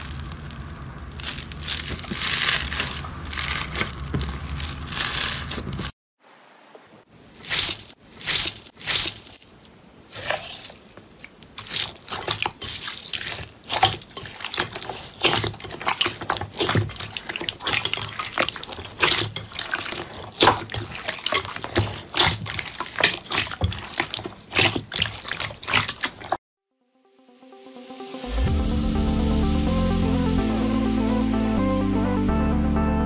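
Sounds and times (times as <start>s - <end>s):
slime squelching and popping: 0.0s - 5.9s, 7.4s - 26.4s.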